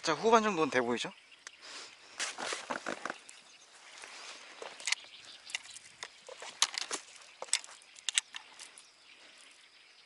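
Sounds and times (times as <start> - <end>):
fishing gear clicking and tapping: 4.6 - 8.9.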